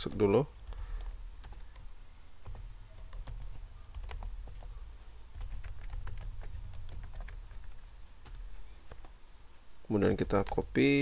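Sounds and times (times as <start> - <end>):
keyboard keys clicking: 0.0 - 9.2, 10.1 - 10.7
low steady hum: 0.0 - 11.0.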